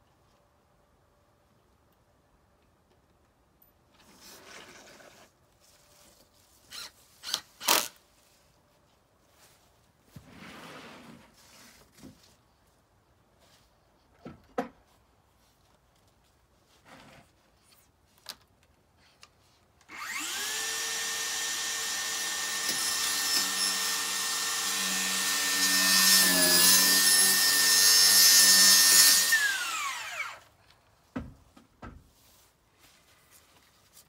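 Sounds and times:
power tool motor whine: 19.9 - 30.4.

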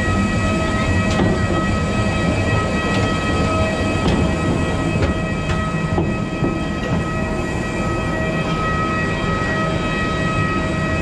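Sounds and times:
jet turbine whine: 0.0 - 11.0
footsteps on metal stairs: 0.7 - 7.9.

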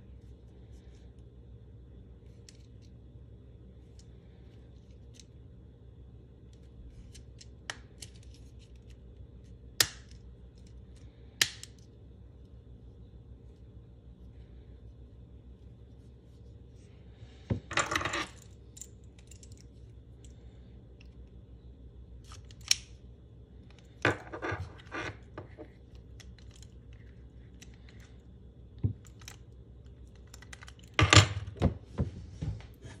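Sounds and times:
keys clattering on wooden table: 17.6 - 19.8, 24.0 - 25.8, 30.3 - 31.7.

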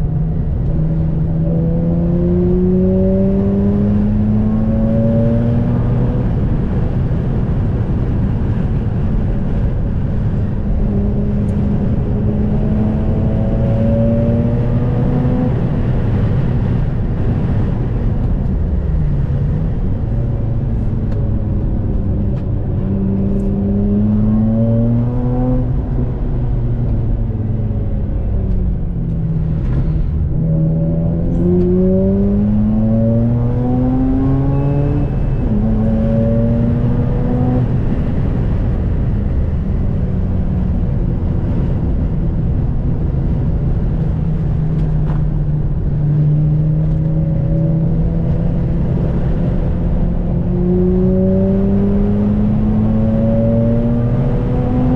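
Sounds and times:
road and wind noise: 0.0 - 54.9
rotary engine revving: 29.4 - 37.8.

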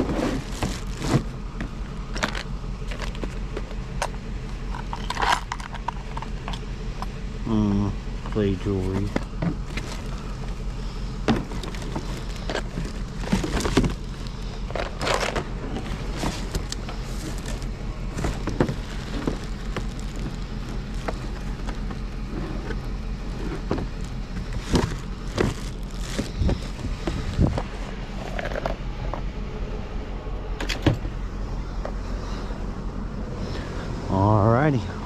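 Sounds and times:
plastic and metal objects clattering: 0.0 - 6.6, 8.4 - 10.2, 11.2 - 29.2
steady low hum: 0.0 - 35.0.

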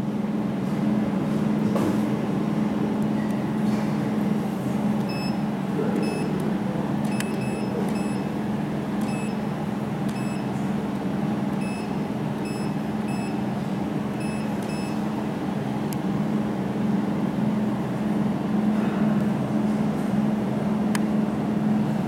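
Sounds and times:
touchscreen beeps: 5.1 - 6.4, 7.1 - 8.3, 9.0 - 9.4, 10.1 - 10.5, 11.6 - 13.4, 14.2 - 15.0
click: 7.0 - 8.0.

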